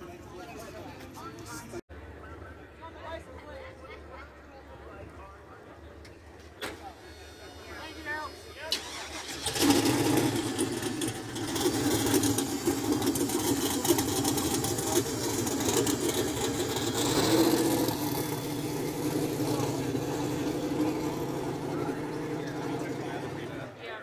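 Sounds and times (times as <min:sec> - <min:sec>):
truck engine idling: 0:06.8 - 0:23.8.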